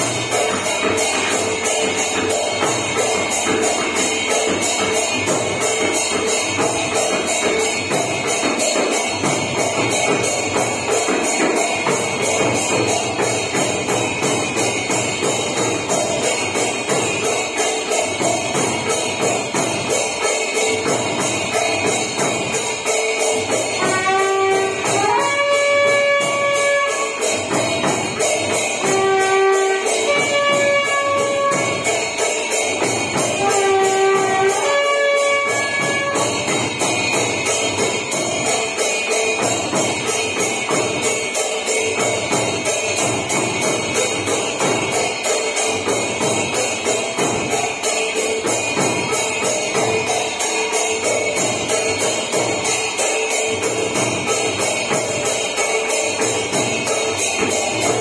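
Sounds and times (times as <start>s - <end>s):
bells and cymbals clanging: 0.0s - 58.0s.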